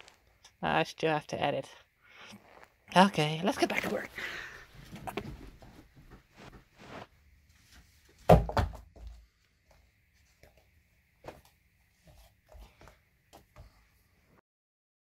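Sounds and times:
rustling: 2.2s - 8.2s
thumps and knocks on bed: 8.3s - 9.1s.

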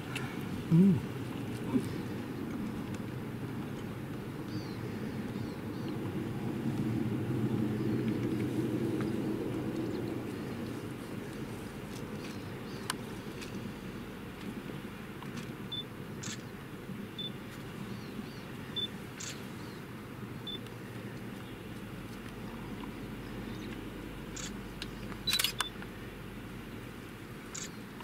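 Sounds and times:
steady low rumble: 0.0s - 18.9s
camera shutter clicks: 16.2s - 16.5s, 19.2s - 19.4s, 24.4s - 24.6s, 25.2s - 25.7s, 27.6s - 27.8s.

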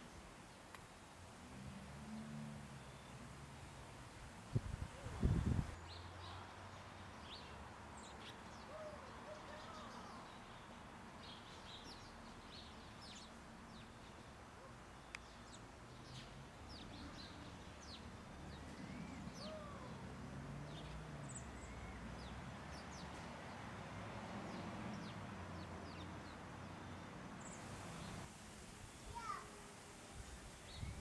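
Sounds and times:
small birds chirping: 24.5s - 28.3s.

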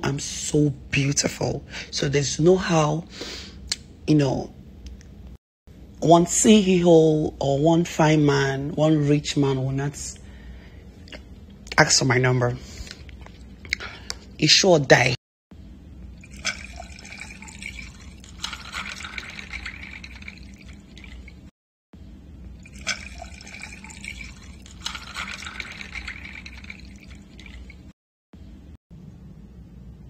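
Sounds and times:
liquid pouring into a glass: 16.2s - 21.5s, 22.6s - 27.9s.

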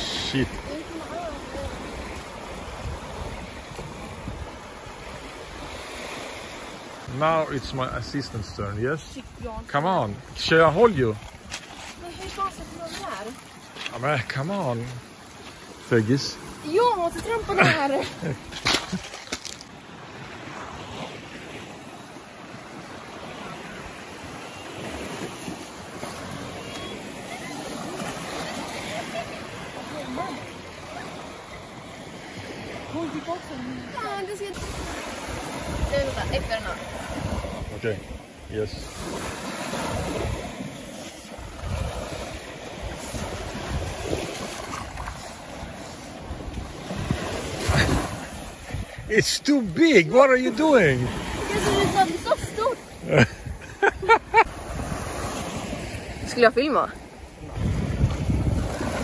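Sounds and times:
wind buffeting microphone: 0.0s - 5.9s, 33.9s - 40.7s, 41.3s - 49.2s, 51.1s - 59.0s
small waves washing onto pebble shore: 0.0s - 59.0s.

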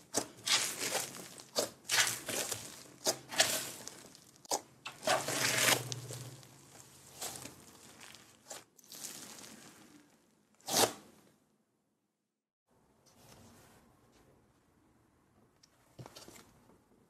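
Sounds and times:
sticky slime crackling: 0.0s - 11.0s.

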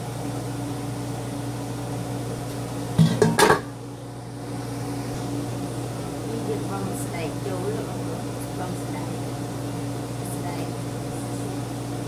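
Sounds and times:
steady low hum: 0.0s - 12.0s
pan lid clanking against metal: 3.0s - 3.7s.

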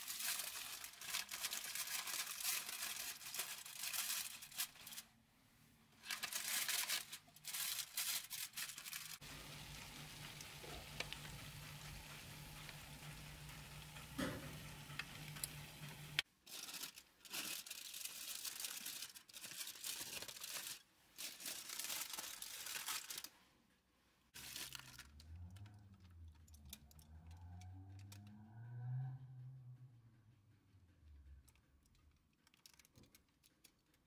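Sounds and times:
aluminium foil crinkling: 0.0s - 5.1s, 6.0s - 23.4s, 24.4s - 27.4s, 31.5s - 34.0s
baking tray sizzling: 7.8s - 16.3s.

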